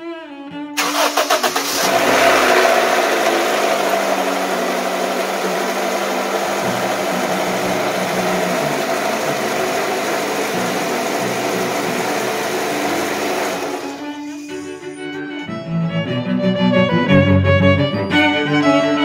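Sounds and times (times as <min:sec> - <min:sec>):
car engine cranking and idling: 0:00.8 - 0:15.5.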